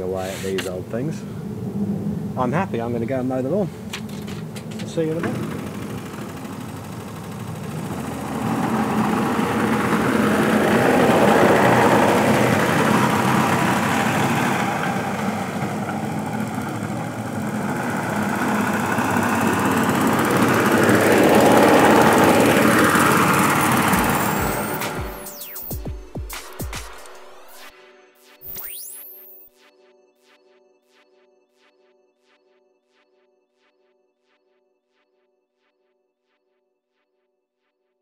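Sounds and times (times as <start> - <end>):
lawnmower running: 3.9 - 25.2.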